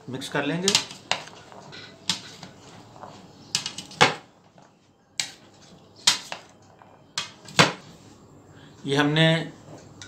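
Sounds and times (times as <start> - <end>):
food mixture rustling: 0.3 - 8.2.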